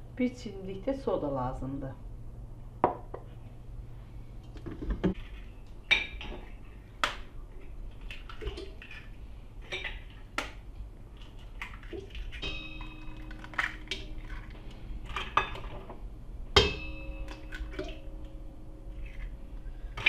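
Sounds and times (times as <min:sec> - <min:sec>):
low steady hum: 0:00.0 - 0:20.0
eggs cracking on metal bowl: 0:05.9 - 0:18.4.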